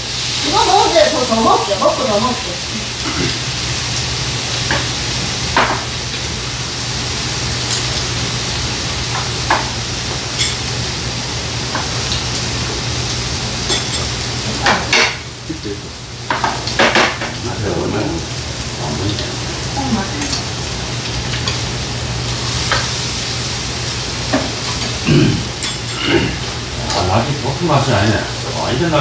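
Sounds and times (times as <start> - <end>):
food sizzling in frying pan: 0.0 - 29.0
chopsticks and glassware clinking: 10.4 - 10.6, 13.7 - 14.1, 20.2 - 20.7, 25.6 - 26.0.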